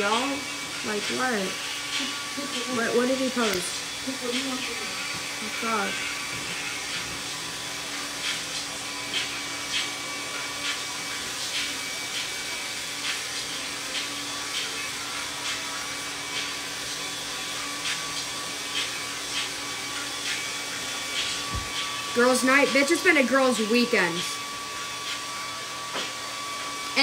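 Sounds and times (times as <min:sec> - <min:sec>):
hair dryer blowing: 0:00.0 - 0:27.0.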